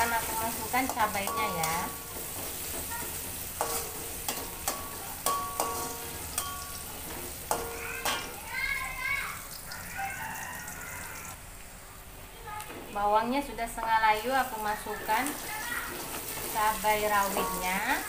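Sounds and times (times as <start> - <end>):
metal spatula clinking on wok: 0.0 - 8.4, 17.2 - 18.0
shallots sizzling in hot oil: 0.0 - 18.0.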